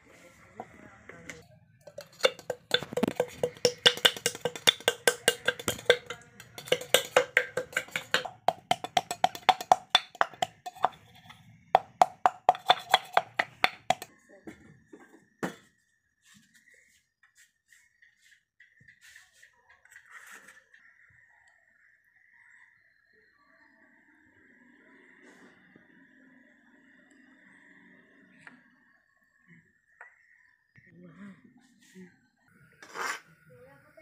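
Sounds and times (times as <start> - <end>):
pounding in a metal tumbler: 1.9 - 14.1.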